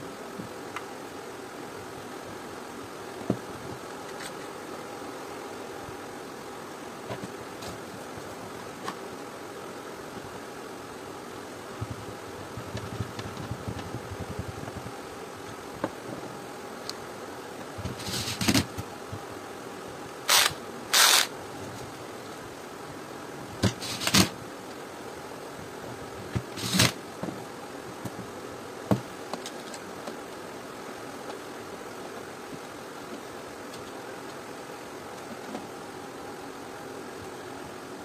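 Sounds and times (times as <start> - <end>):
steady background hum: 0.0 - 38.0
cordless drill bursts: 20.3 - 21.3.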